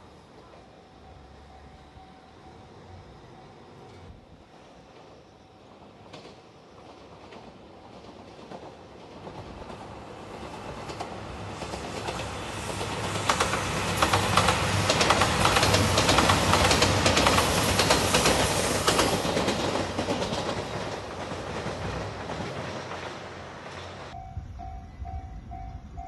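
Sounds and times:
train rumbling past: 0.0s - 26.0s
wheels clacking over rail joints: 6.0s - 24.2s.

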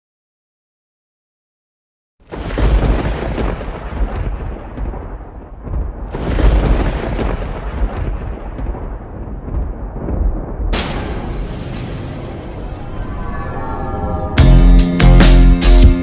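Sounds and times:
sharp crack: 2.3s - 12.2s.

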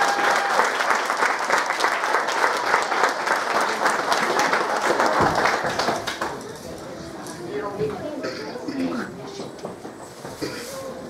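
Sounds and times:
congregation applauding: 0.0s - 6.8s.

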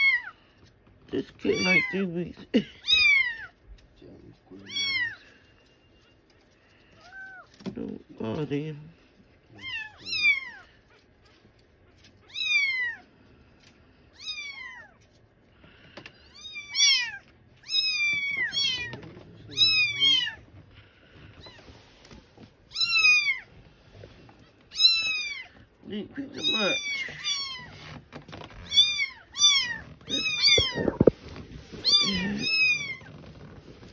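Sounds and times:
kitten mewing: 2.8s - 3.6s, 16.3s - 20.4s, 28.7s - 31.2s, 31.8s - 33.0s.

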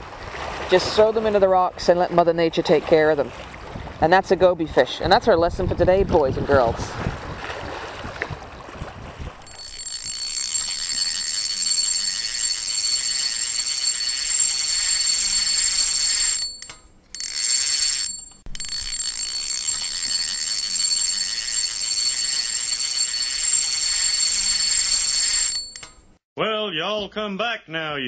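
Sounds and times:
wind: 0.0s - 26.2s
high-pitched ringing: 9.4s - 26.1s.

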